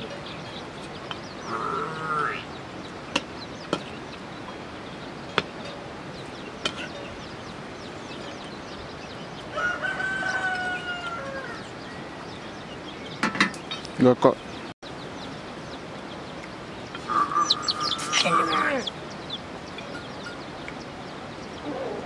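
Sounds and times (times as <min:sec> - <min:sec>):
small birds chirping: 0:00.0 - 0:22.0
rooster crowing: 0:09.5 - 0:12.2.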